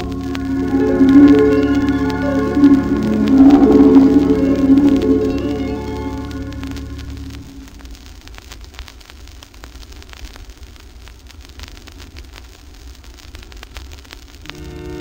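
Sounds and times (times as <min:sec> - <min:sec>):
organ-like music: 0:00.0 - 0:07.7
vinyl crackles and clicks: 0:00.0 - 0:15.0
vinyl record hiss and rumble: 0:00.0 - 0:15.0.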